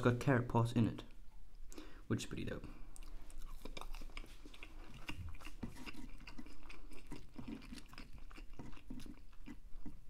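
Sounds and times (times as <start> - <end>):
person chewing food: 2.8 - 10.0.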